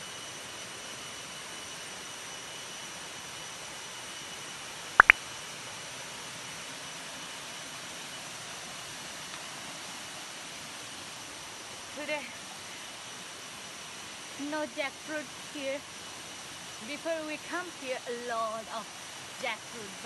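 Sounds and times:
small waterfall hissing: 0.0 - 20.0.

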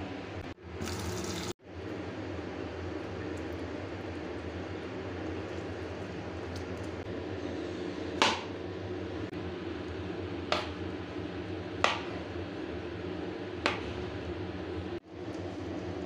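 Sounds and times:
steady background hum: 0.0 - 16.0
knife chopping on plastic board: 11.8 - 12.1.

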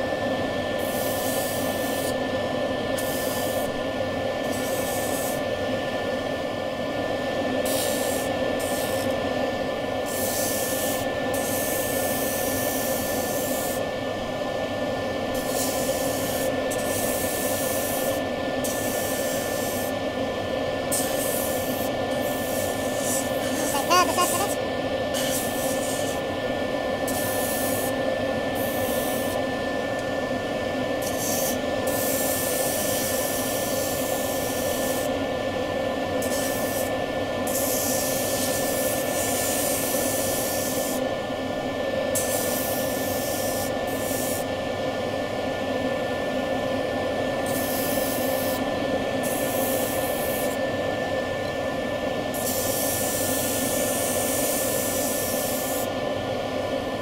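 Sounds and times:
hissing rasp of sanding wood: 20.9 - 24.6.

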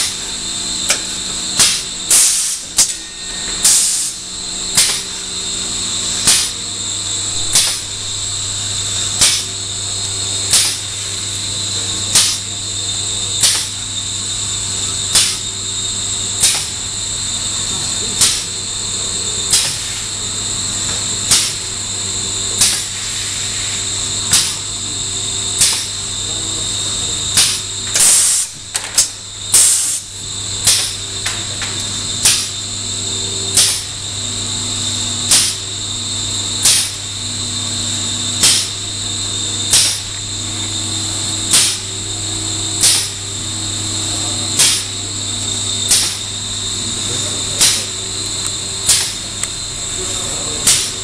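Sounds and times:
machine hum with high whine: 0.0 - 51.0
sharp mechanical clack: 0.9 - 3.0, 4.8 - 5.1, 7.4 - 7.9, 9.2 - 9.5, 12.1 - 12.5, 13.4 - 13.7, 15.1 - 15.4, 16.4 - 16.7, 18.2 - 18.4, 19.5 - 19.8, 21.3 - 21.6, 22.6 - 22.9, 24.3 - 24.6, 25.6 - 25.9, 30.6 - 31.4, 32.2 - 32.5, 33.6 - 33.9, 35.3 - 35.6, 36.6 - 37.0, 38.4 - 38.8, 39.7 - 40.0, 41.5 - 41.9, 42.8 - 43.2, 44.6 - 45.0, 45.9 - 46.3, 47.6 - 47.9, 48.8 - 49.5, 50.6 - 51.0.

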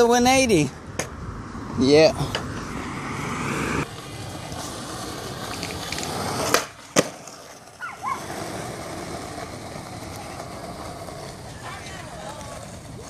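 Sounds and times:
skateboard wheels rolling on asphalt: 0.0 - 13.0
skateboard clacks: 3.8 - 13.0.

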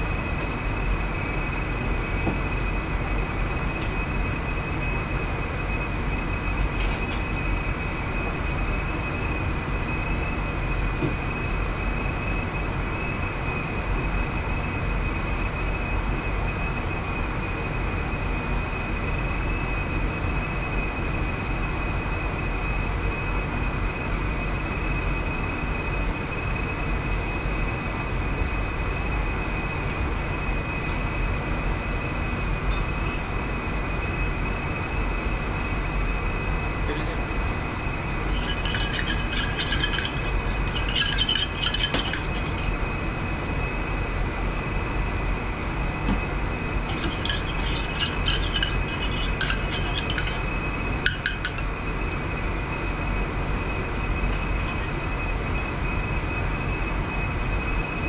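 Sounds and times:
thin high whine: 37.8 - 44.0, 46.2 - 56.5
kitchen ventilation rushing: 38.2 - 43.0, 46.7 - 51.7
utensils clicking: 38.3 - 42.7, 46.9 - 50.5, 51.1 - 51.6.

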